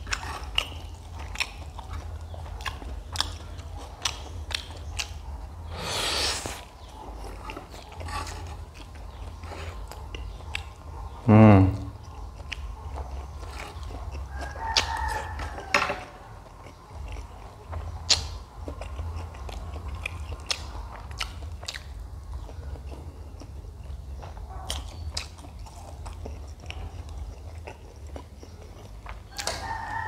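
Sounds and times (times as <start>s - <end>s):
chewing and biting noodles: 0.0s - 10.9s, 12.0s - 15.7s, 16.4s - 30.0s
mouth clicks and smacks: 18.0s - 23.5s.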